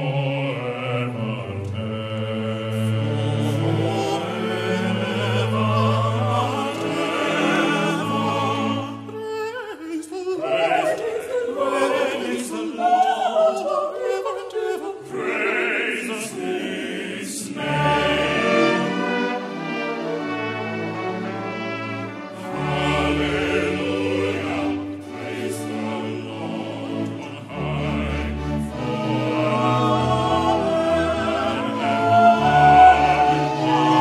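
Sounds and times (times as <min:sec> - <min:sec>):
choir singing gospel: 0:00.0 - 0:09.4, 0:10.1 - 0:34.0
keyboard: 0:15.0 - 0:34.0
trumpets and trombone: 0:17.6 - 0:24.7.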